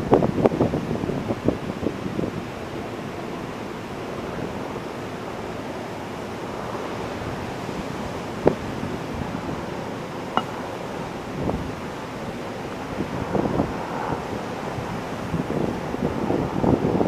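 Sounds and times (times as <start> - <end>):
wind on microphone: 12.9 - 17.0.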